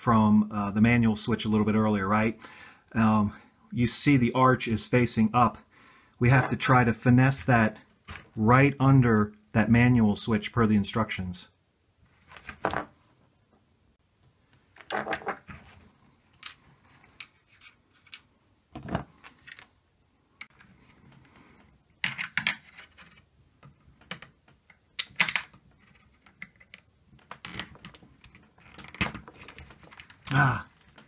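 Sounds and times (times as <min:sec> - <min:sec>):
small plastic parts clicking: 0:23.6 - 0:31.0.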